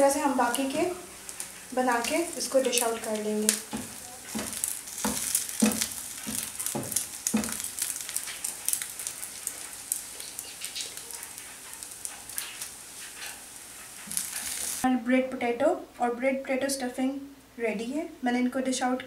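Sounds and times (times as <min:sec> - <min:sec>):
food sizzling in oil: 0:00.0 - 0:14.9
spatula knocking against pan: 0:03.6 - 0:08.1.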